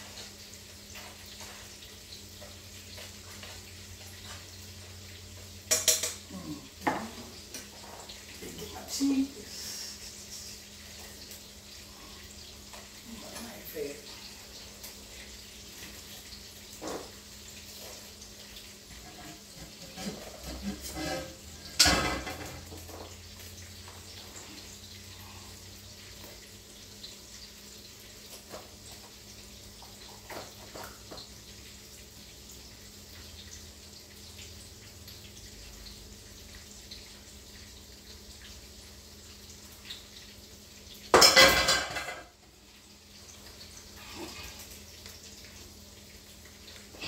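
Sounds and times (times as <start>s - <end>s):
metal clattering on pot: 5.7s - 7.2s, 19.0s - 23.1s, 41.1s - 42.4s.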